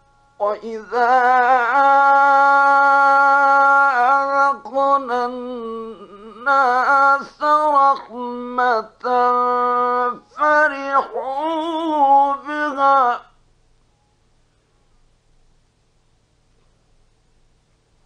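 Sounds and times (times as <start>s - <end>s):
man reciting melodically: 0.4s - 13.4s.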